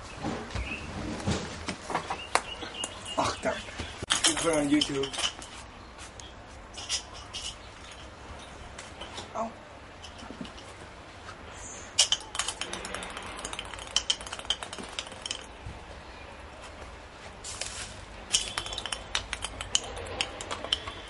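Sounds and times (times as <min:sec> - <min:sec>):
ping-pong ball bouncing on stone: 0:12.0 - 0:15.5, 0:18.3 - 0:21.0.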